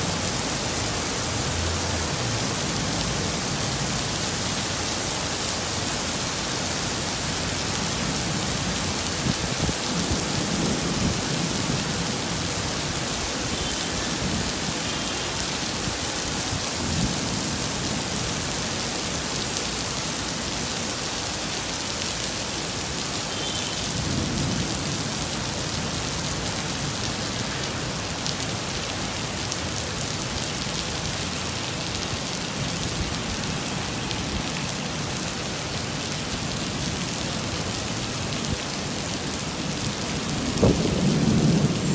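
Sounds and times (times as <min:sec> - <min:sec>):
heavy rain on pavement: 0:00.0 - 0:41.9
thunder rumbling: 0:40.2 - 0:41.9.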